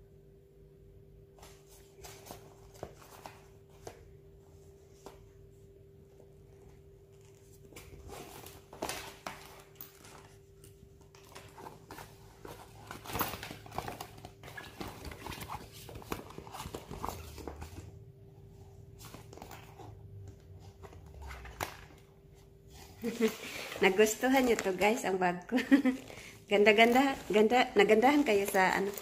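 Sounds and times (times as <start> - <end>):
faint steady hum: 0.0 - 29.0
rustling fabric: 22.2 - 29.0.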